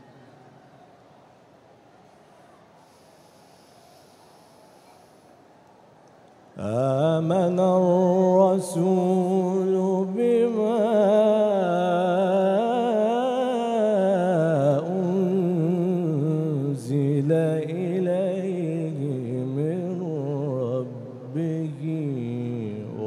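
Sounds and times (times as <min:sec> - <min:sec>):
man reciting melodically: 0:06.6 - 0:23.0.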